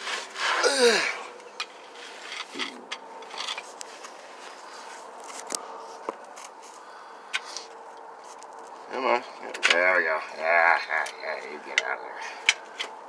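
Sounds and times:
groan falling in pitch: 0:00.6 - 0:01.2.

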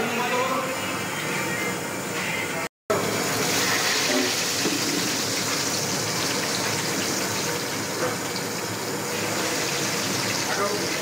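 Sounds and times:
meat deep-frying in hot oil: 0:02.9 - 0:11.0.

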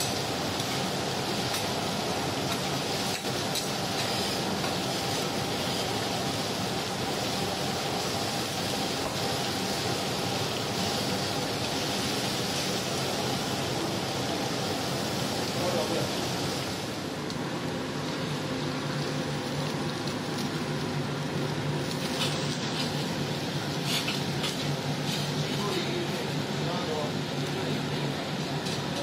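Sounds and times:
meat and eggs sizzling on griddle: 0:00.0 - 0:26.4.

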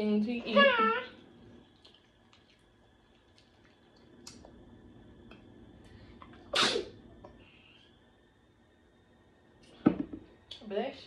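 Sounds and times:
person sneezing: 0:06.5 - 0:06.9.

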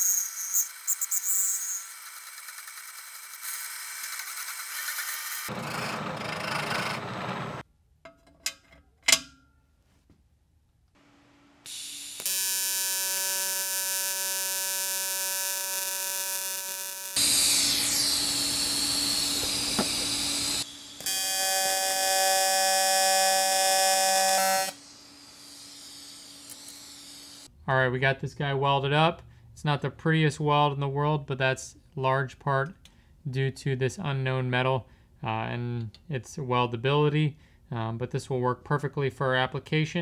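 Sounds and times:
welding arc buzzing: 0:00.0 - 0:07.2, 0:11.6 - 0:27.5
milling cutter cutting metal: 0:15.5 - 0:24.8.

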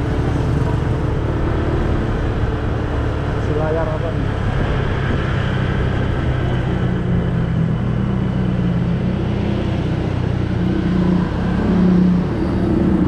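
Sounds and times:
road noise: 0:00.0 - 0:13.0.

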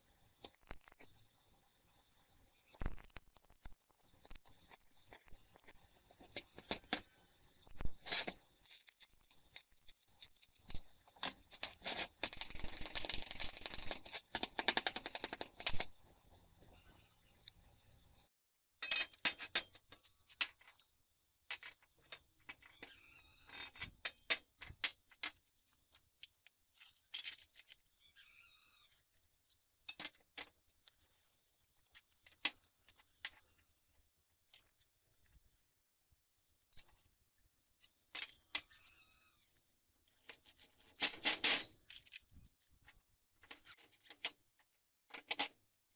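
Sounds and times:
metal parts clinking and knocking: 0:02.8 - 0:15.9, 0:18.8 - 0:27.9, 0:29.4 - 0:30.6, 0:37.8 - 0:39.0, 0:40.2 - 0:44.4.

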